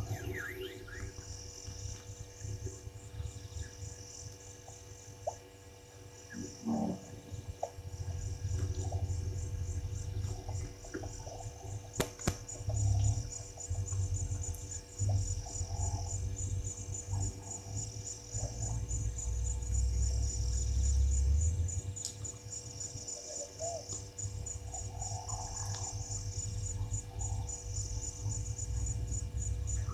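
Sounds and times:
pulsing insect chorus: 0.0s - 29.9s
faint animal calls: 6.3s - 9.2s, 23.1s - 27.8s
wind rumble on microphone: 6.7s - 22.8s
sharp click: 12.0s - 12.5s.

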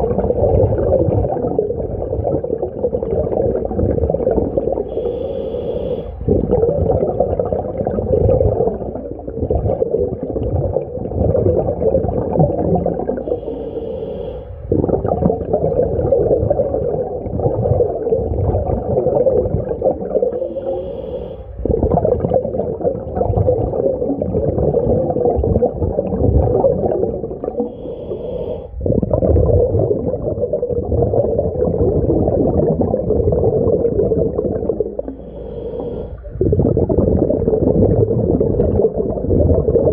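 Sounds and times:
exhaled bubbles rumbling underwater: 0.0s - 39.9s
hissing regulator inhale: 4.8s - 6.3s, 13.2s - 14.7s, 20.2s - 21.6s, 27.6s - 28.9s, 35.0s - 36.4s.

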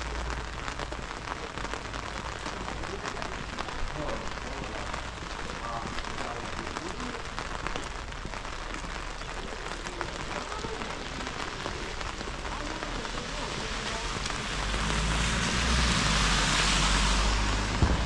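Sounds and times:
steady rain falling: 0.0s - 18.0s
low rumble: 11.9s - 18.0s.

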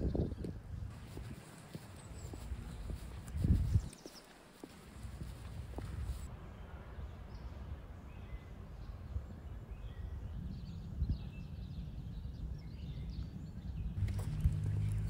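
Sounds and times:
wind rumble on microphone: 0.0s - 4.2s, 4.9s - 15.0s
low hum: 14.0s - 15.0s.

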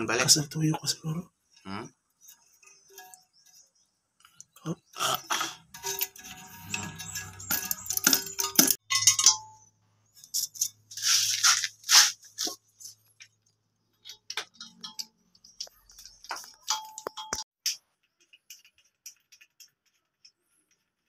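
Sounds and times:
plastic fittings clicking and rattling: 14.0s - 21.0s.

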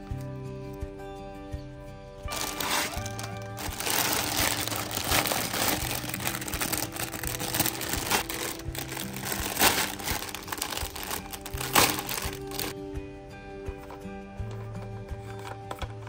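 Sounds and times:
soft background music: 0.0s - 16.0s
plastic bag crinkling: 2.3s - 12.8s.

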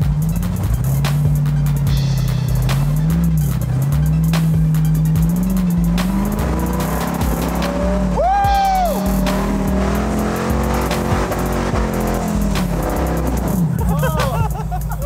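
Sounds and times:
man yelling: 8.1s - 9.2s, 13.8s - 14.5s.

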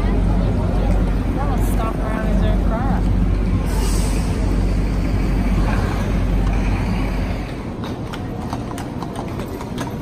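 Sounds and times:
city street traffic rumble: 0.0s - 10.0s
horse hooves clip-clopping: 7.3s - 10.0s.

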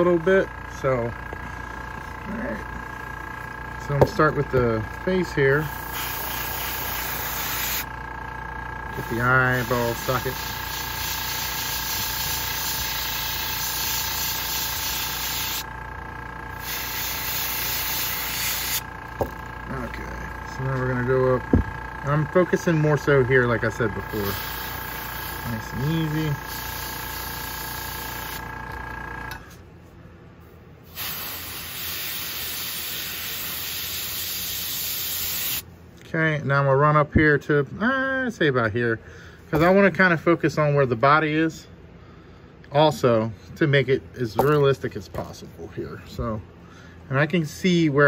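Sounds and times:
airbrush spraying hiss: 5.7s - 7.8s, 9.0s - 15.6s, 16.6s - 18.8s, 24.1s - 28.4s, 30.9s - 35.6s.

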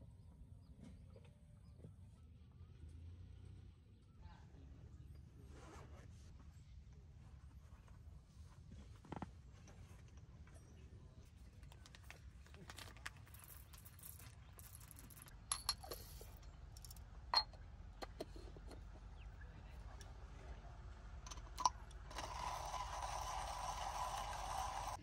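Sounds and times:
hand coffee grinder grinding: 11.6s - 17.0s, 21.3s - 25.0s.

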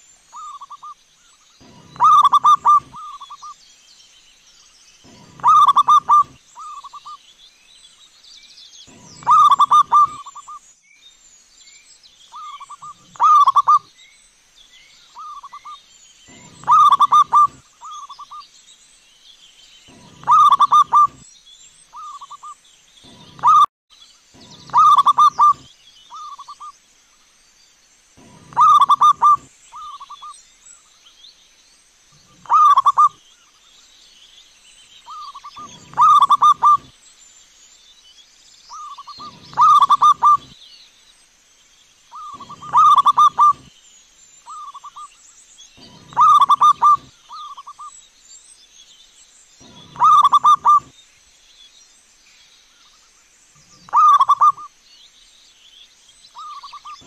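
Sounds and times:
faint bird chirps: 0.0s - 57.0s
faint high-pitched whine: 0.0s - 57.0s
dove cooing: 1.6s - 3.5s, 5.1s - 7.0s, 8.9s - 10.5s, 12.4s - 13.8s, 16.3s - 18.4s, 19.9s - 21.2s, 23.1s - 23.7s, 24.4s - 26.6s, 28.2s - 30.2s, 32.2s - 33.2s, 35.1s - 36.9s, 38.8s - 40.5s, 42.2s - 43.7s, 45.8s - 47.7s, 49.6s - 50.9s, 53.8s - 54.7s.

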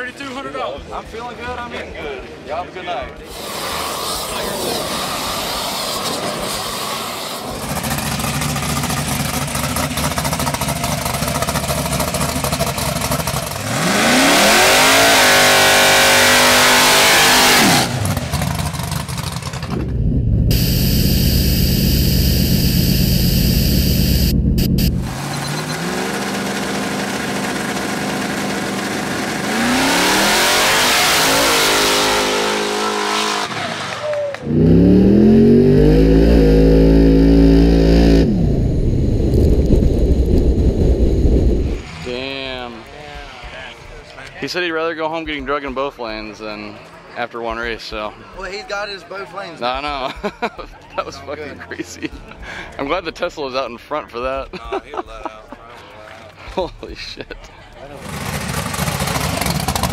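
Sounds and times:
race car engine revving: 7.4s - 42.8s, 57.9s - 59.9s.

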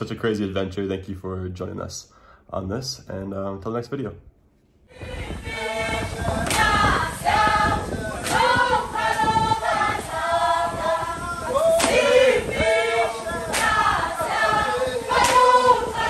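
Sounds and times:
group of voices singing: 4.9s - 16.0s.

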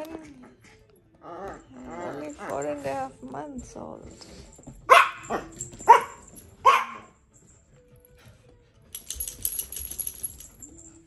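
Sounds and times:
small dogs barking: 4.9s - 7.1s.

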